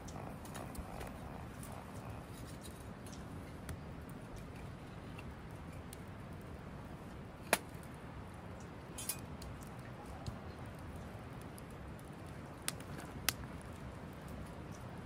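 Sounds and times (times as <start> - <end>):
wood fire crackling: 0.0 - 15.0
sharp fire pops: 7.4 - 7.9, 12.6 - 13.7.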